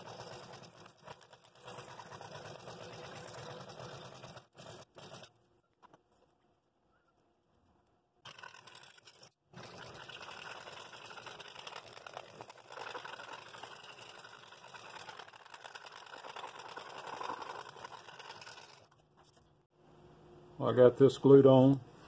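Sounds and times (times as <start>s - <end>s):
scroll saw cutting wood: 0.0s - 5.3s, 8.3s - 19.0s.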